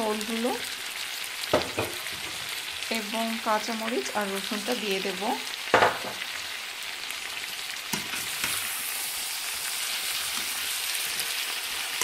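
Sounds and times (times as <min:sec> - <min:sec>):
food sizzling in frying pan: 0:00.0 - 0:12.0
spatula knocking pan: 0:05.7 - 0:06.2.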